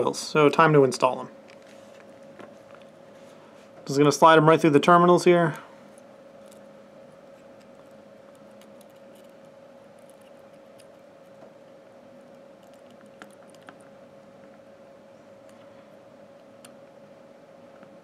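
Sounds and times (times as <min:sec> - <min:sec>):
faint hum: 0:00.0 - 0:18.0
wire leads ticking and scraping: 0:05.9 - 0:11.5.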